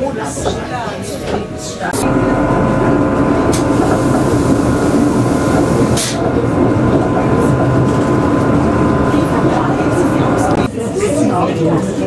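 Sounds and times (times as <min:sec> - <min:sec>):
train drive and wheels drone: 0:00.3 - 0:12.0
steady whine: 0:02.0 - 0:10.7.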